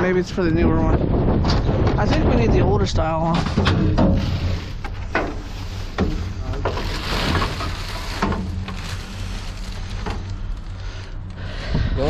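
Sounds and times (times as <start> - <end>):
low rumble: 0.0 - 12.0
plastic and paper rustling: 3.3 - 11.4.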